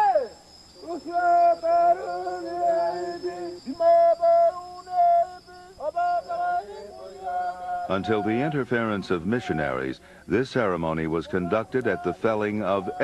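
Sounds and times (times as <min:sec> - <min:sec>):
high insect drone: 0:00.0 - 0:13.0
men singing a chant: 0:00.9 - 0:09.1.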